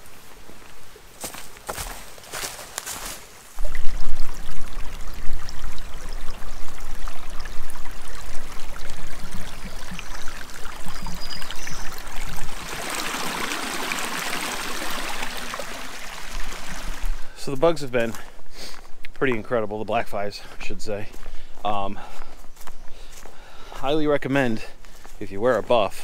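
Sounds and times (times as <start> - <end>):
brook babbling over stones: 0.0 - 18.1.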